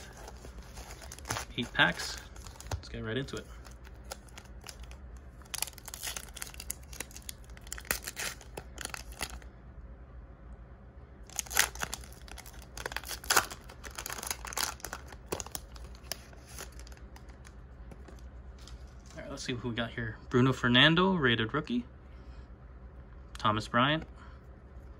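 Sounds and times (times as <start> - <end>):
foil pack crinkling and ripping: 0.0 - 9.4, 11.3 - 17.4.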